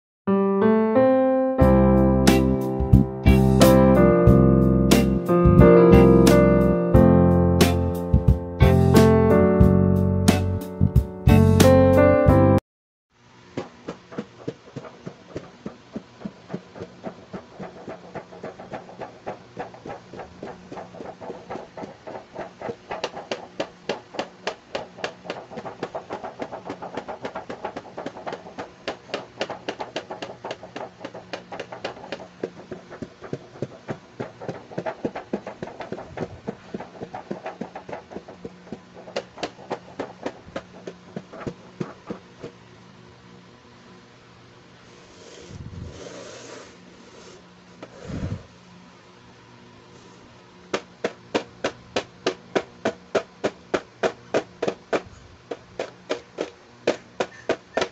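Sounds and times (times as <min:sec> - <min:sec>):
fingers tapping on hard plastic: 0:13.9 - 0:42.2.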